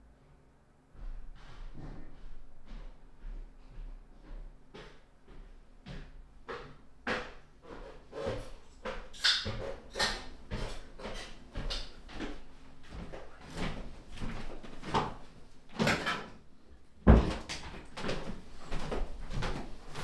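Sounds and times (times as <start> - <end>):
knocks and thumps of person moving: 17.0 - 20.0.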